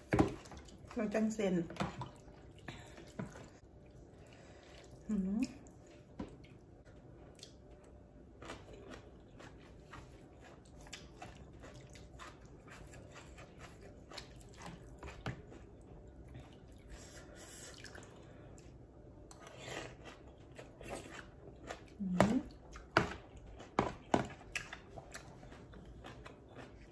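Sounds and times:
wet chewing: 0:07.3 - 0:18.7, 0:19.3 - 0:26.9.

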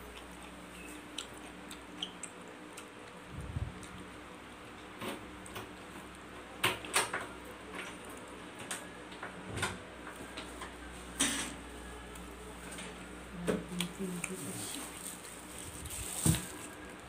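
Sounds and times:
chewing sounds: 0:00.0 - 0:06.4.

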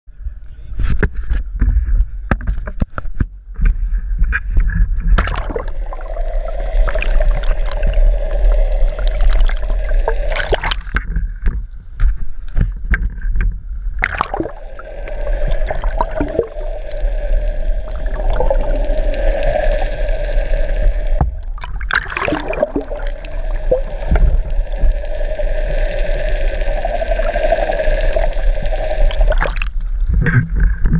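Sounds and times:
steady hum through water: 0:00.1 - 0:30.9
water gurgling underwater: 0:04.9 - 0:11.7, 0:13.9 - 0:30.9.

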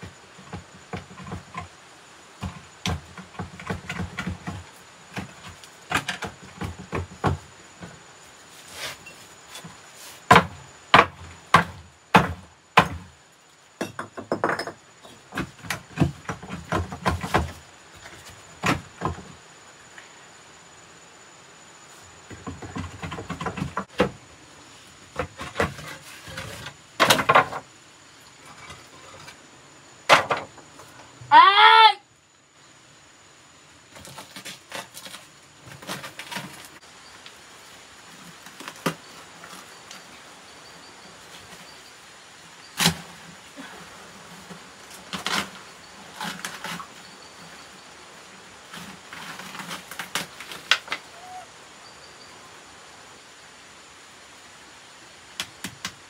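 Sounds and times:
knocks and scrapes: 0:00.0 - 0:13.2, 0:13.8 - 0:19.4, 0:21.9 - 0:24.2, 0:24.8 - 0:27.7, 0:28.4 - 0:29.4, 0:33.9 - 0:36.9, 0:42.7 - 0:47.9, 0:48.5 - 0:51.3.

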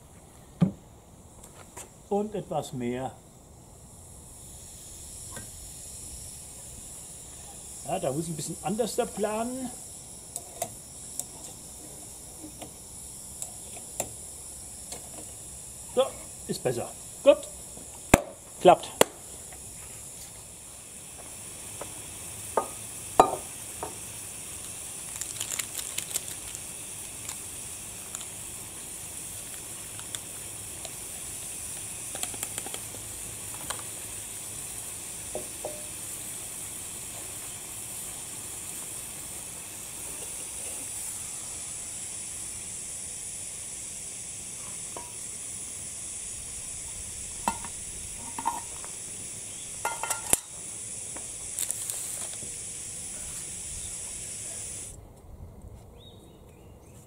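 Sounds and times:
water boiling with hiss: 0:00.0 - 0:55.2
metal cookware clinking: 0:49.8 - 0:50.5.

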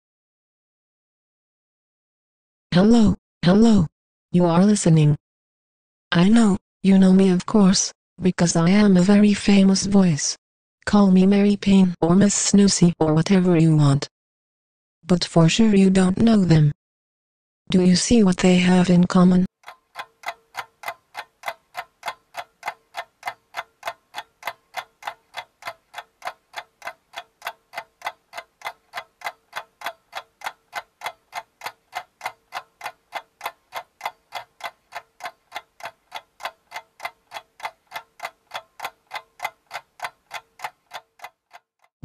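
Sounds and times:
clock ticking fast: 0:19.6 - 0:41.9.

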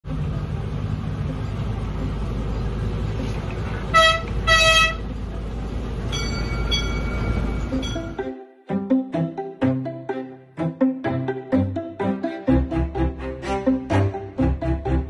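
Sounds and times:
miniature train rumbling: 0:00.0 - 0:08.2
train horn toots: 0:03.9 - 0:05.2.

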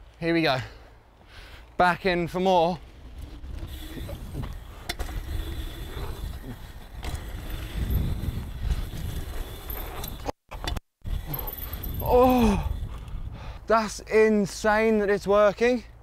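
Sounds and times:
bike tyres rumbling over dirt: 0:02.2 - 0:10.3.

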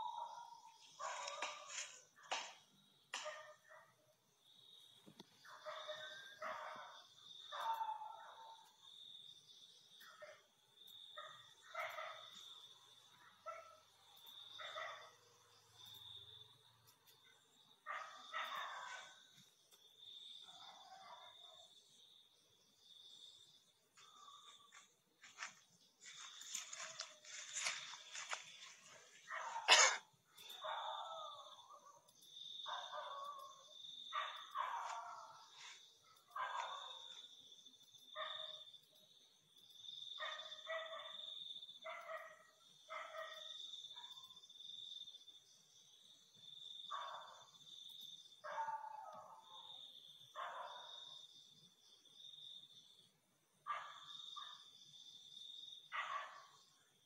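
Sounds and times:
dog barking: 0:00.0 - 0:04.2, 0:05.4 - 0:08.9, 0:10.0 - 0:10.5, 0:11.2 - 0:16.0, 0:17.8 - 0:19.5, 0:20.4 - 0:21.9, 0:24.2 - 0:37.3, 0:38.1 - 0:38.7, 0:40.2 - 0:44.4, 0:46.9 - 0:47.7, 0:48.4 - 0:51.3, 0:53.6 - 0:54.8, 0:55.8 - 0:56.8
crickets trilling: 0:00.0 - 0:57.0.

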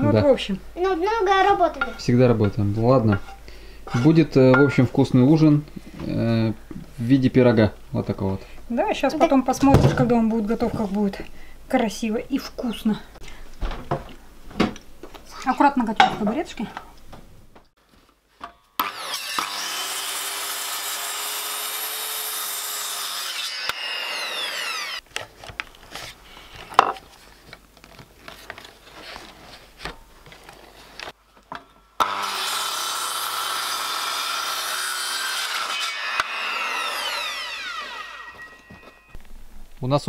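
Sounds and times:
circular saw cutting wood: 0:18.8 - 0:25.0, 0:32.0 - 0:39.2.

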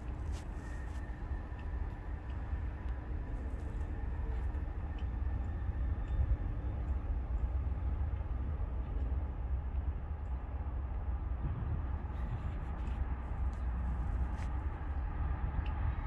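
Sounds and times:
faint ticks: 0:00.0 - 0:07.5
distant diesel train rumble: 0:00.0 - 0:16.0.

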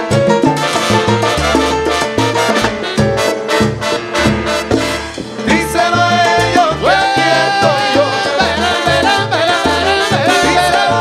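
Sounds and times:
live salsa band playing: 0:00.0 - 0:11.0.

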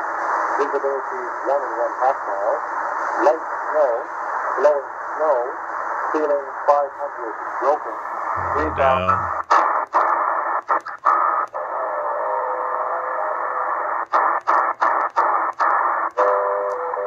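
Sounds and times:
radio static hiss: 0:06.2 - 0:17.0.

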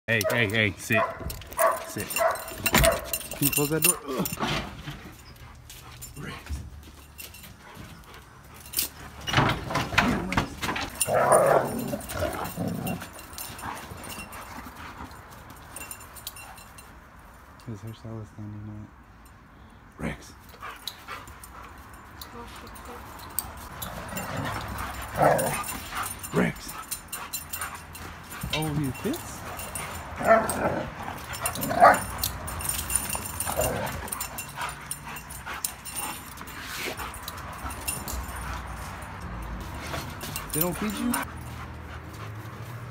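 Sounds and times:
dogs vocalizing in play: 0:10.9 - 0:16.7, 0:20.5 - 0:42.9.

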